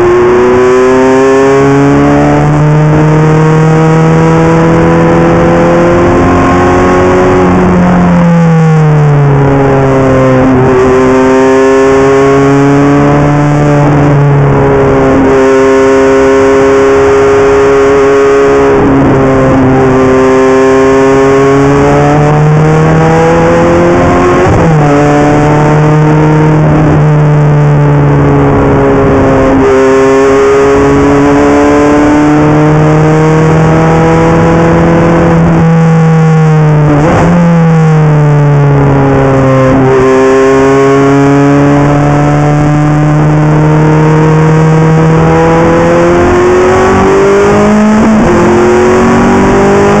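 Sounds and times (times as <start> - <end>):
race car engine under hard throttle: 0.0 - 50.0.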